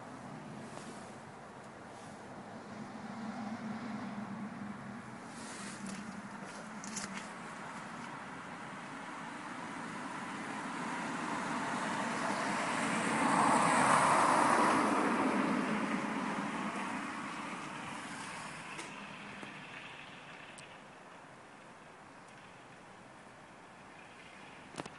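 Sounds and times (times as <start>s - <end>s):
vehicle passing on wet road: 1.9s - 21.0s.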